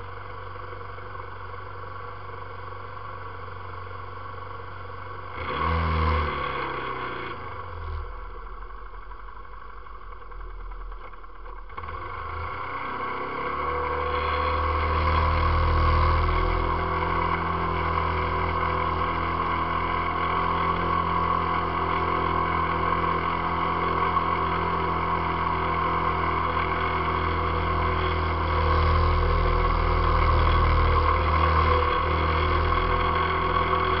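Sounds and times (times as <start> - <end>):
quad bike engine revving: 5.3 - 8.3, 11.7 - 34.0.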